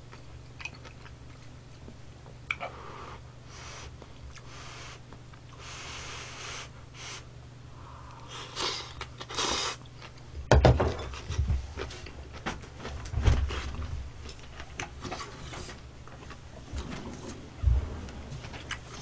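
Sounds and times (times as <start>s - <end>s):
chewing with wet mouth clicks: 0.1s - 2.6s
person slurping noodles: 8.3s - 9.8s
knock: 10.5s - 11.0s.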